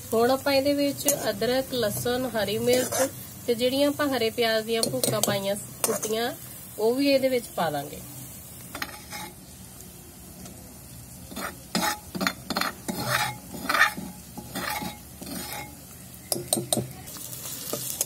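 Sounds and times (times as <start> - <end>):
onions sizzling in oil: 0.0 - 18.0
spoon scraping clay bowl: 2.6 - 3.2, 8.7 - 9.4, 11.3 - 16.6.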